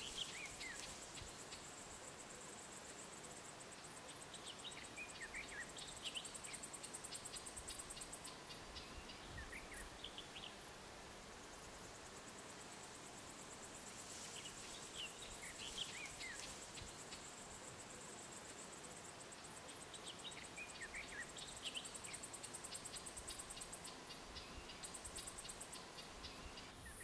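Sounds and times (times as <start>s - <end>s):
insect chirring: 0.0s - 27.0s
small birds chirping: 4.0s - 10.8s, 14.2s - 17.4s, 19.6s - 27.0s.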